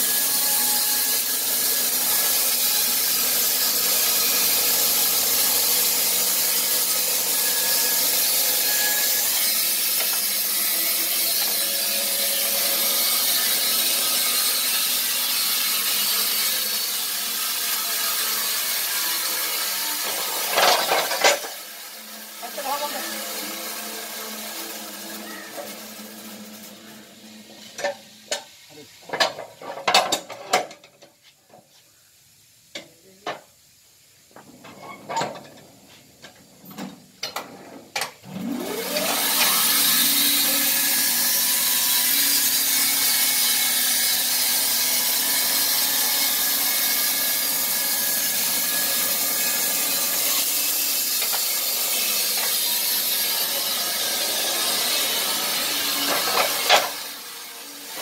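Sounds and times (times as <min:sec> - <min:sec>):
band saw cutting log: 0:00.0 - 0:28.5, 0:38.3 - 0:58.0
band saw whine: 0:38.2 - 0:58.0.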